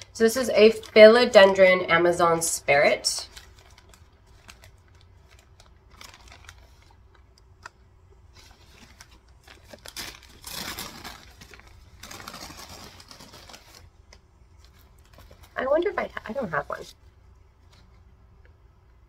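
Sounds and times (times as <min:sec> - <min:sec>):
packaging crinkling and rustling: 0:03.2 - 0:16.9.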